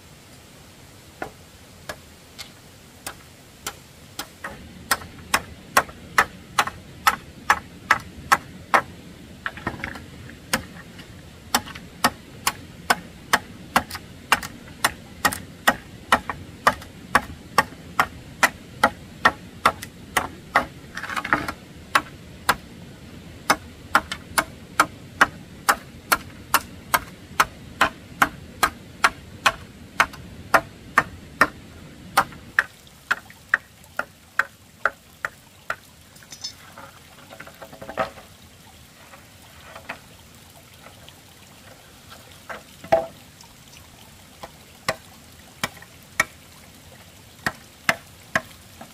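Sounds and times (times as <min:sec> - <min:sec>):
machete chopping bamboo: 0:03.0 - 0:08.9, 0:11.5 - 0:22.6, 0:23.5 - 0:31.6.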